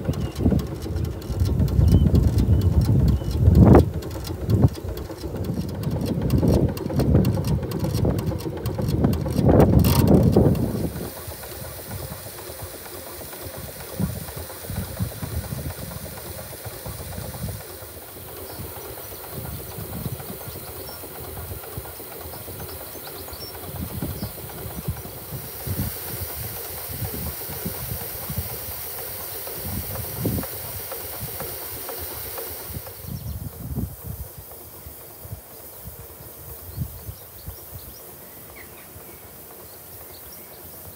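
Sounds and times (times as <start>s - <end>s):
steam engine beats: 0.0s - 40.9s
steam hissing: 0.0s - 40.9s
small birds chirping: 36.5s - 40.9s.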